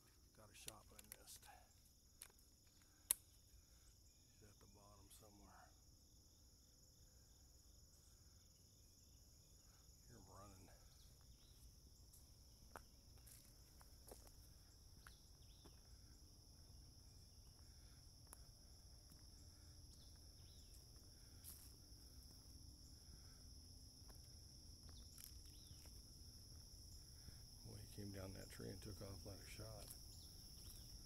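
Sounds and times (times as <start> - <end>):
sharp ticks and snaps: 0.0 - 3.8, 10.5 - 16.6, 17.3 - 31.0
crickets chirping: 0.0 - 31.0.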